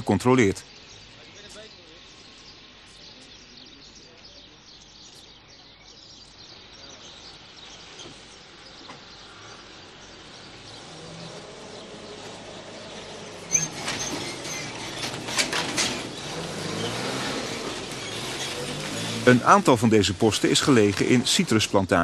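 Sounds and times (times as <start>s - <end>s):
distant voices: 0.0s - 22.0s
lorry engine running: 6.7s - 22.0s.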